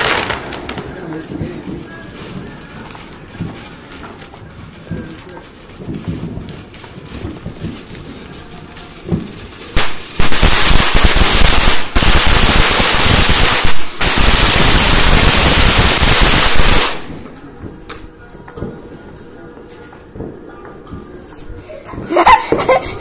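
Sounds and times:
fountain firework spraying sparks: 0.0s - 17.3s.

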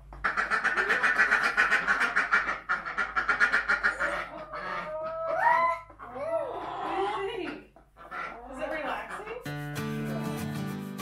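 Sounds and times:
poultry quack-like calls: 0.1s - 5.6s, 7.3s - 9.5s.

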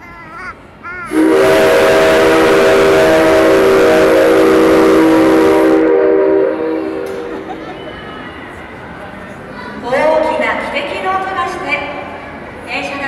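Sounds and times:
steam locomotive whistle: 1.1s - 8.5s.

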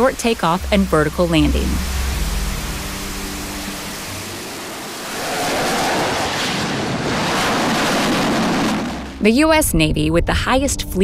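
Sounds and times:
jet engine rushing: 3.1s - 9.3s.

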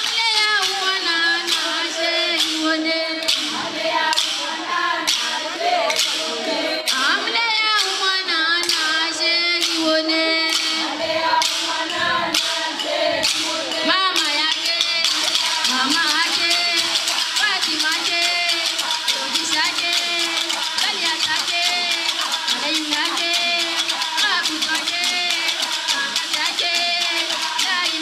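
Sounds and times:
handclaps: 0.0s - 4.5s, 5.1s - 6.3s, 7.7s - 9.0s, 9.6s - 9.9s, 10.5s - 12.6s, 13.2s - 13.6s, 14.2s - 28.0s
voices singing along: 0.0s - 28.0s
woman singing through speaker: 0.0s - 28.0s.

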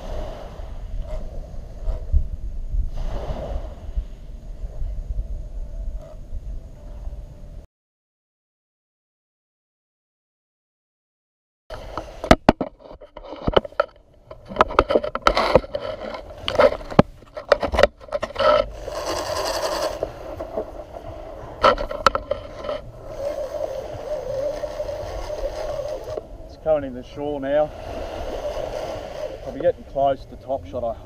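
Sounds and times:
steady hum: 11.7s - 31.0s.

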